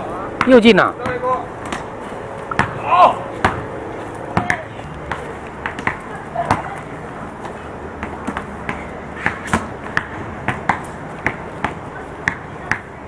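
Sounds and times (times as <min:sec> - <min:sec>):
low background noise: 0:00.0 - 0:13.0
basketball bouncing: 0:00.3 - 0:01.9, 0:02.5 - 0:02.8, 0:03.4 - 0:03.7, 0:04.3 - 0:06.8, 0:08.0 - 0:12.9.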